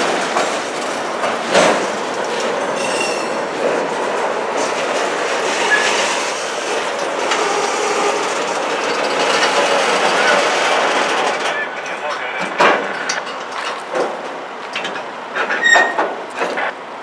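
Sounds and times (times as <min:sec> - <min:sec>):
train wheels rolling on rail: 0:00.0 - 0:17.0
faint wheel squeals: 0:15.4 - 0:16.1.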